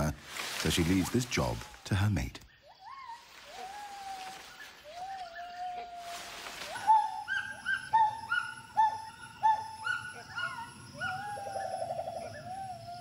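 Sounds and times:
gibbon calling: 6.8s - 13.0s.

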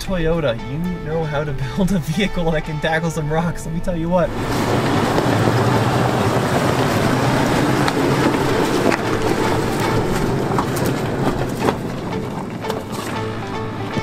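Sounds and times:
engine running at low revs: 4.2s - 14.0s
tyres crunching on rocks: 4.3s - 14.0s.

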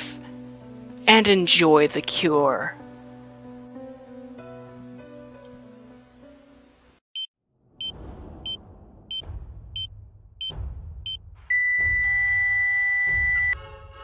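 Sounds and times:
plucked background music: 0.0s - 6.8s
heart monitor flatline tone: 9.8s - 13.6s
heart monitor beeps: 11.1s - 13.6s.

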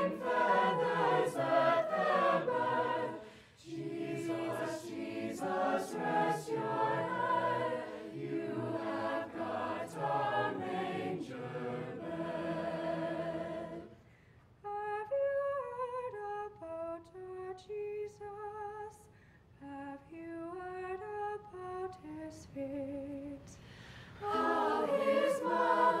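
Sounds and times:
choir singing a cappella chord: 0.0s - 14.1s, 24.0s - 26.0s.

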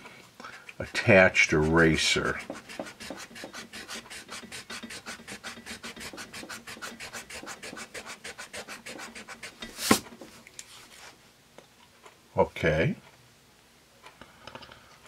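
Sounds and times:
eraser rubbing on paper: 0.9s - 10.1s
brush or knock: 1.7s - 11.2s.

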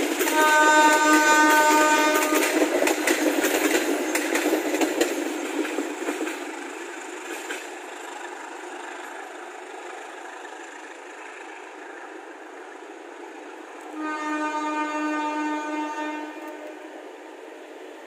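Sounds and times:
train wheels on rails: 0.0s - 18.0s
train horn blast: 0.2s - 2.7s, 13.9s - 16.9s.

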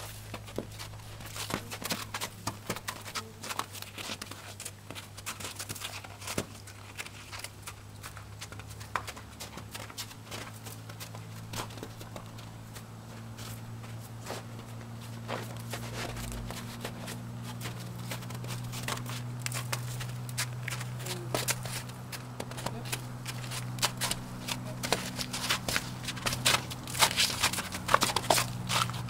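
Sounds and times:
horse hooves crunching on snow: 0.0s - 29.0s
low hum: 6.5s - 29.0s.

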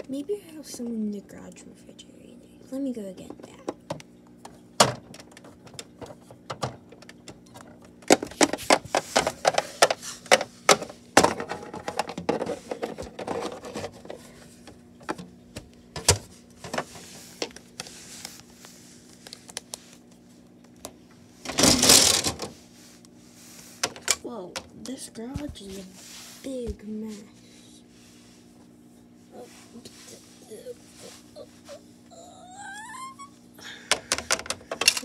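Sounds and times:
rustling plastic clatter: 4.8s - 15.3s, 21.4s - 22.5s, 34.0s - 35.0s
plastic toys clicking and knocking: 21.5s - 22.5s, 33.9s - 35.0s.

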